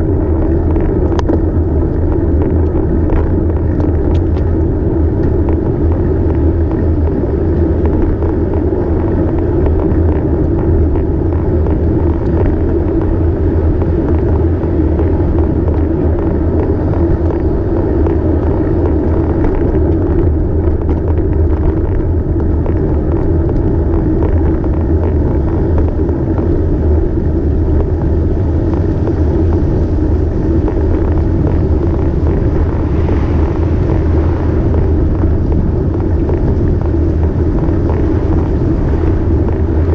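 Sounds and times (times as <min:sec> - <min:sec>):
bicycle tyre and road noise: 0:00.0 - 0:39.9
wind on microphone: 0:00.0 - 0:39.9.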